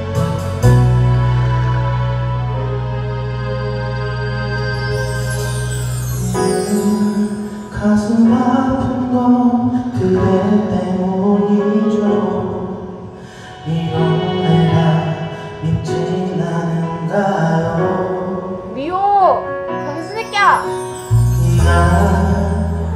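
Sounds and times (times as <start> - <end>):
music: 0.0 - 22.9
man singing into a microphone: 6.4 - 18.7, 21.2 - 22.9.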